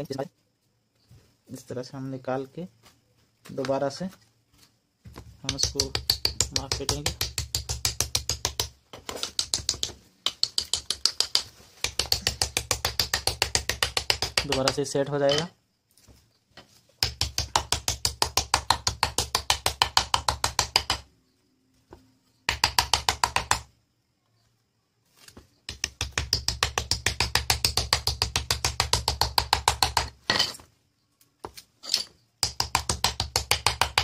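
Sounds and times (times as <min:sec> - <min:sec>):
small hammer tapping steel: 0:05.5 - 0:15.5.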